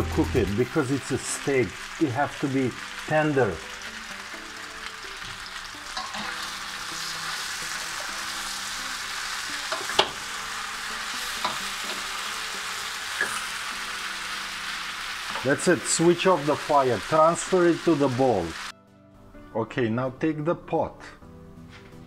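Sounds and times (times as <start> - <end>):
meat sizzling in a frying pan: 0.0 - 18.7.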